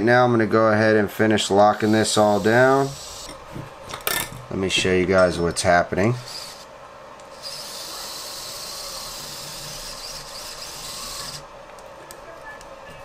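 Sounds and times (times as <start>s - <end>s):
electric screwdriver running: 7.3s - 11.4s.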